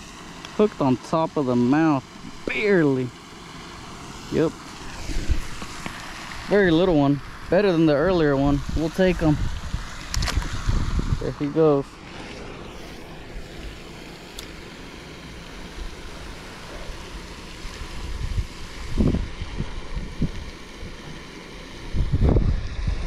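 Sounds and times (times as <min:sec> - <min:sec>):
steady rushing hiss: 0:00.0 - 0:23.0
wind blowing across microphone: 0:04.9 - 0:05.8, 0:08.0 - 0:11.5, 0:17.9 - 0:21.2, 0:21.8 - 0:23.0.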